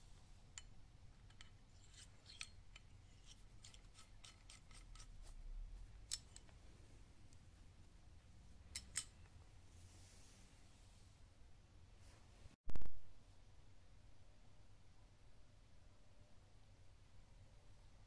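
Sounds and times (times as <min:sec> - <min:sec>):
small metal parts clicking: 0:01.3 - 0:05.2, 0:06.0 - 0:06.5, 0:08.7 - 0:09.3.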